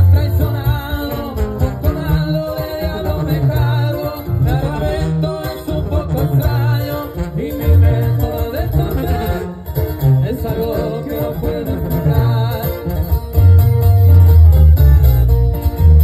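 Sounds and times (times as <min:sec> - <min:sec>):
sousaphone and upright bass: 0:00.0 - 0:16.0
strummed acoustic guitars: 0:00.0 - 0:16.0
wavering lead melody: 0:10.8 - 0:16.0.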